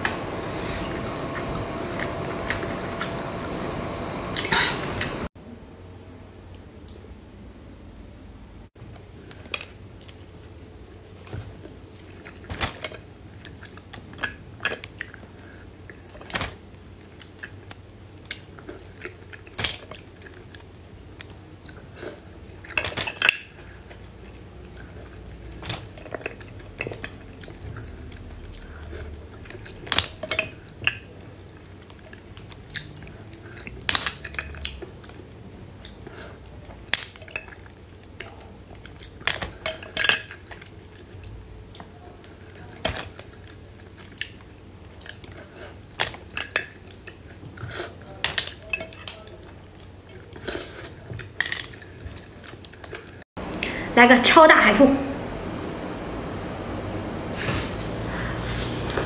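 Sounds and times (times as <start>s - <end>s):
chewing oysters: 9.2s - 53.2s.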